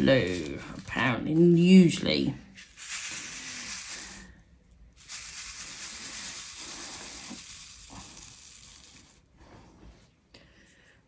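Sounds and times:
small plastic pieces rattling in tray: 2.6 - 4.3, 5.0 - 9.2.

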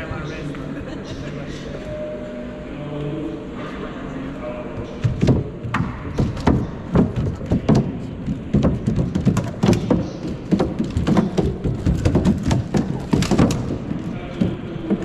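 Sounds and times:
robot feet thudding: 5.0 - 15.0.

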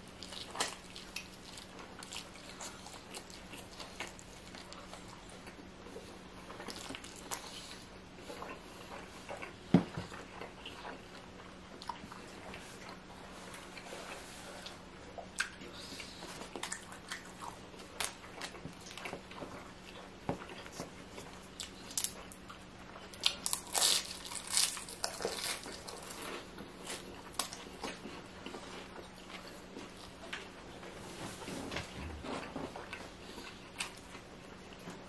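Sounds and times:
person chewing and biting chicken: 0.0 - 5.6, 19.9 - 30.2.

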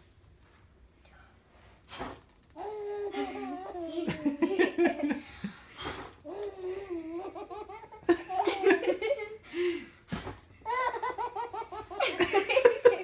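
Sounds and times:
baby giggling: 2.6 - 5.0, 6.2 - 9.3, 10.6 - 13.0.

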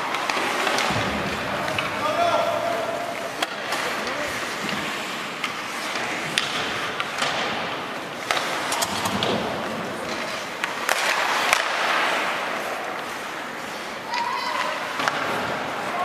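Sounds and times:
hockey sticks and puck clacking: 0.0 - 16.0
skate blades scraping ice: 0.0 - 16.0.

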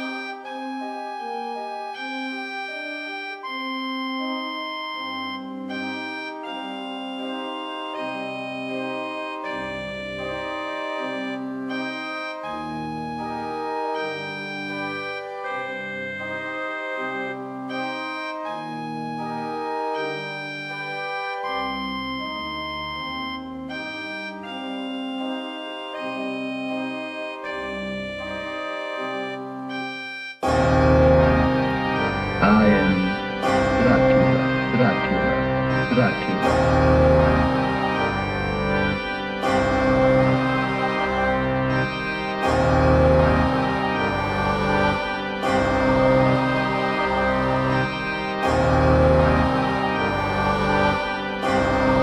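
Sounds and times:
organ playing slow chords: 0.0 - 52.0.

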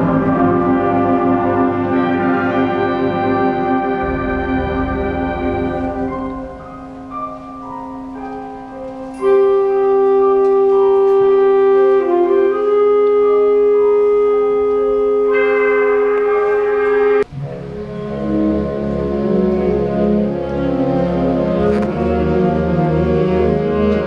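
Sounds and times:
concert band playing held chords: 0.0 - 9.0.

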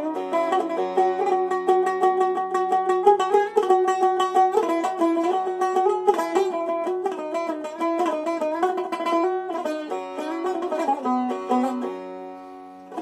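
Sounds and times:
plucked string instrument melody: 0.0 - 13.0.

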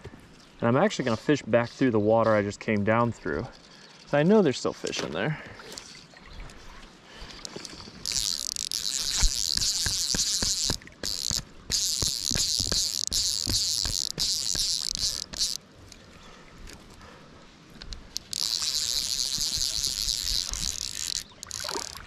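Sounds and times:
fly reel clicker buzzing: 7.4 - 15.6, 17.9 - 22.0.

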